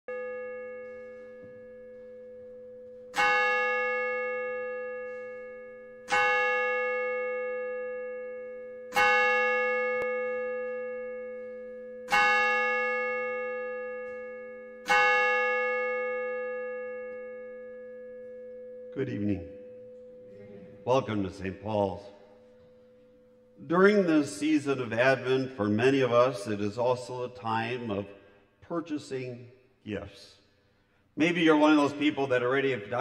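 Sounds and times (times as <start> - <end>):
bell tolling: 9.0 - 28.3.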